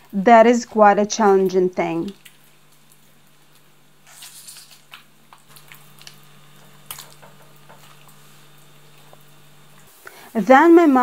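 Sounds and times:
steady low hum: 0.0s - 11.0s
wet squelching of fish skin: 1.4s - 7.2s.

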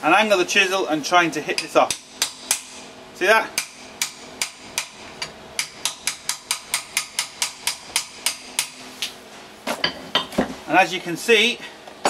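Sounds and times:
hammer striking chisel on metal: 1.5s - 2.8s, 3.5s - 8.8s.

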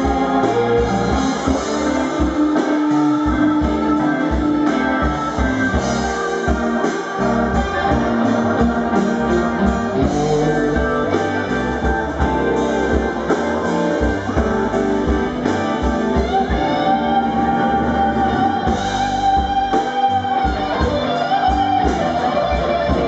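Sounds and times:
drum kit: 0.0s - 23.0s
electric guitars: 0.0s - 23.0s.

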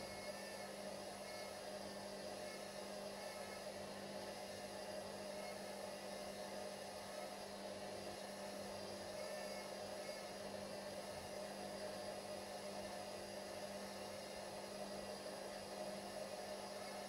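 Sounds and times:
electrical hum with hiss: 0.0s - 17.0s.

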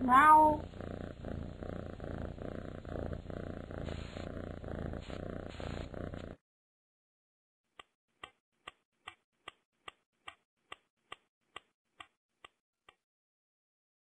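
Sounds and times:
cat purring: 0.0s - 6.4s
clock-like ticks: 7.8s - 13.0s.

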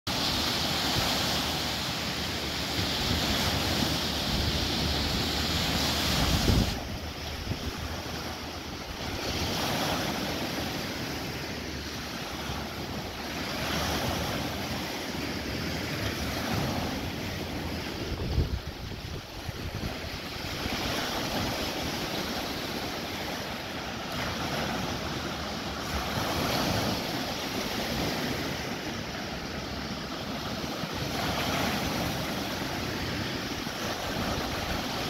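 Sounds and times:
waves breaking on a sandy shore: 0.1s - 35.0s
wind rumble on microphone: 0.1s - 35.0s.

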